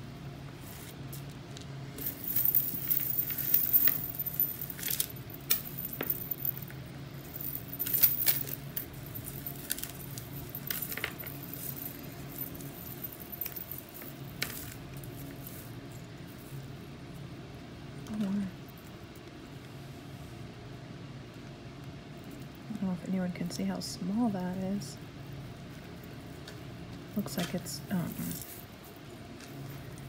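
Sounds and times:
metal chains jingling: 2.0s - 14.8s.

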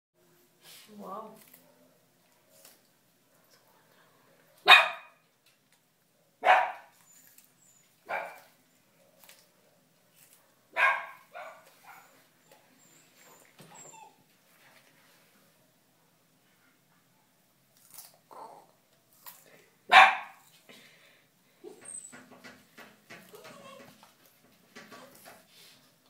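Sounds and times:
dog barking: 4.6s - 5.2s, 6.4s - 7.0s, 8.1s - 8.5s, 10.3s - 12.2s, 19.9s - 20.4s.

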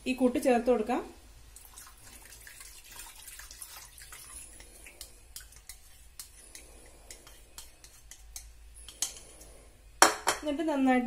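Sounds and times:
liquid pouring and dripping: 1.6s - 5.7s.

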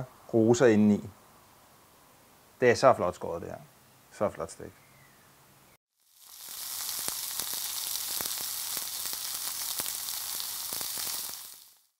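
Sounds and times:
fat crackling and popping: 6.0s - 11.9s
steak sizzling on a grill: 6.0s - 11.9s.

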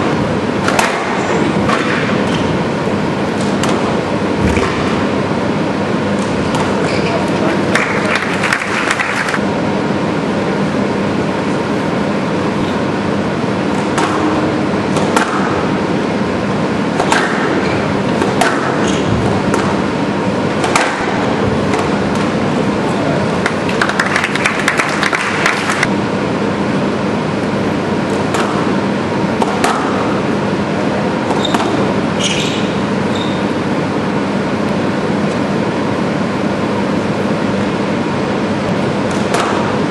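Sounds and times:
squash ball cracking off rackets: 16.9s - 19.9s, 20.5s - 22.3s.

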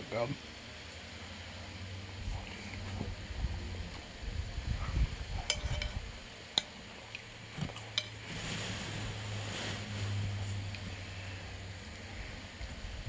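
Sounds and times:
steady low hum: 0.0s - 13.0s
spoon clinking against bowl: 5.5s - 6.0s.

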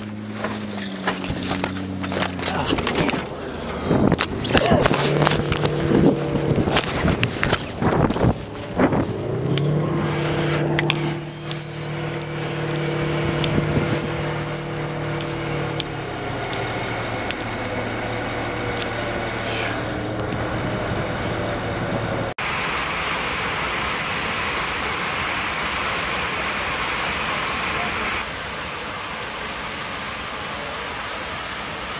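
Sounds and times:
jet engine whine: 20.3s - 31.9s
loud rushing noise in cabin: 21.9s - 31.9s.

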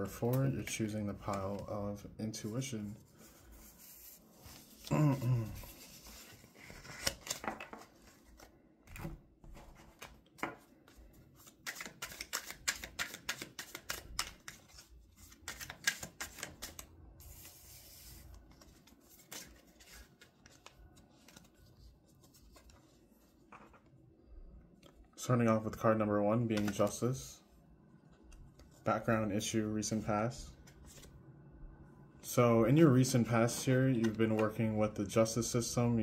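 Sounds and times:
cards being shuffled: 3.9s - 23.9s, 26.5s - 27.0s.

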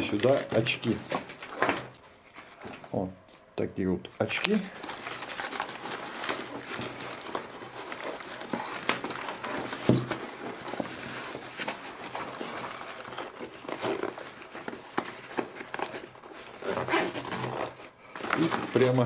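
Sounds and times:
fabric bag rustling and scraping: 4.6s - 19.0s.

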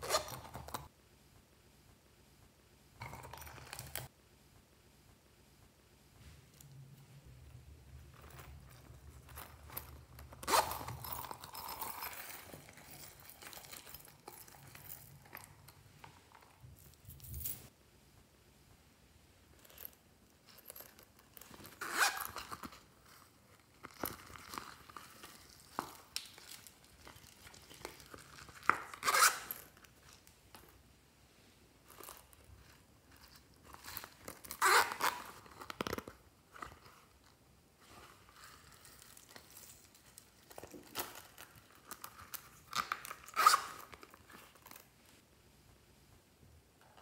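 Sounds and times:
zipper pulls: 0.0s - 0.9s, 8.1s - 15.5s, 21.4s - 22.9s, 27.4s - 29.8s, 33.2s - 37.2s, 40.6s - 44.8s.

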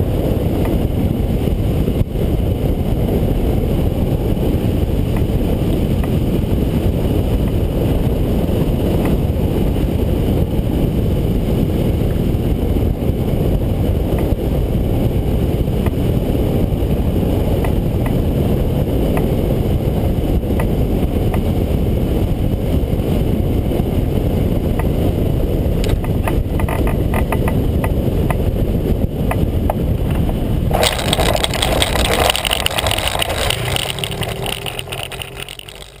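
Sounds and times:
wind rushing over microphone: 0.0s - 36.0s
scattered clicks: 30.7s - 36.0s
wheels crunching on dirt: 30.7s - 36.0s.

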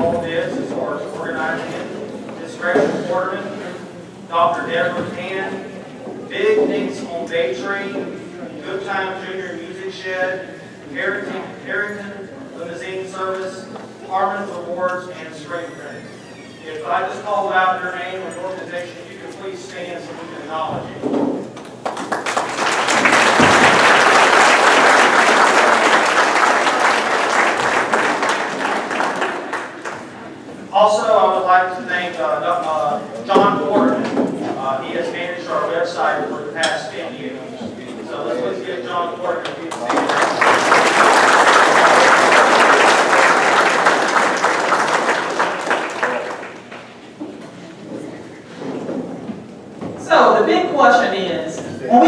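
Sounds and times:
audience applauding: 21.6s - 30.2s, 39.6s - 47.0s.

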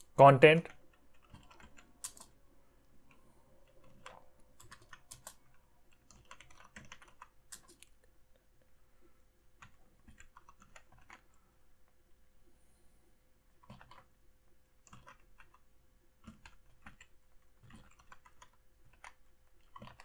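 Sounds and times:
typing on keyboard: 0.7s - 2.4s, 3.0s - 7.9s, 9.6s - 11.3s, 13.6s - 14.1s, 14.8s - 15.6s, 16.2s - 20.0s.

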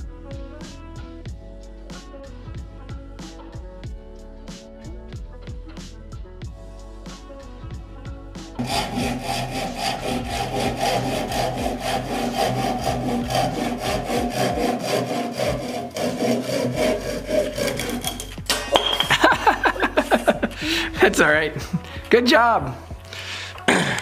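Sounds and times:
handsaw cutting wood: 8.6s - 18.6s.

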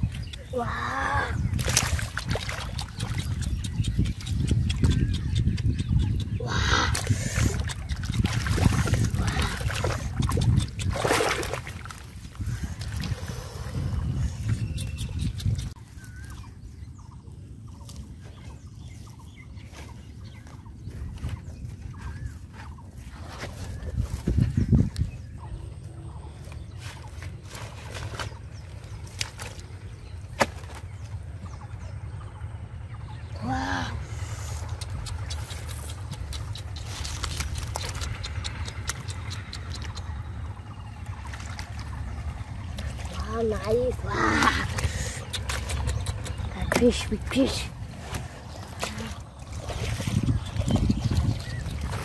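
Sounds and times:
mud splashing and squelching: 0.0s - 16.5s, 26.2s - 31.4s, 33.6s - 52.0s
low rumble: 0.0s - 52.0s
soft water splashes: 1.5s - 3.3s, 6.9s - 13.3s.

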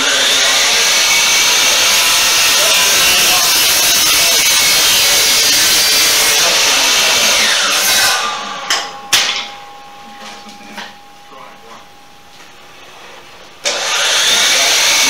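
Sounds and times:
saw cutting wood: 0.0s - 8.7s, 13.6s - 15.0s.

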